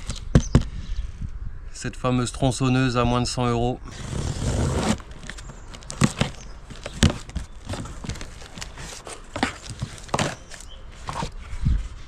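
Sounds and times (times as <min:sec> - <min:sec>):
cardboard rustling and scraping: 0:03.9 - 0:12.0
plastic packaging crinkling: 0:04.8 - 0:11.4.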